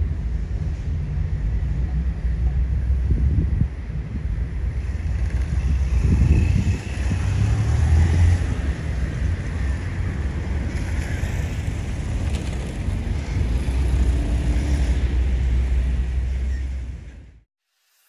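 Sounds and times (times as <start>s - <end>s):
freight train rumbling: 0.0s - 17.4s
wind buffeting microphone: 2.6s - 16.5s.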